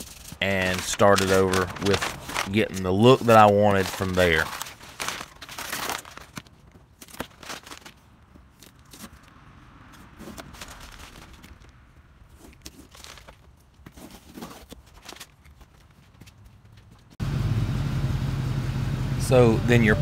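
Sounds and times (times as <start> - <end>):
masking tape being peeled: 0.0 - 6.4.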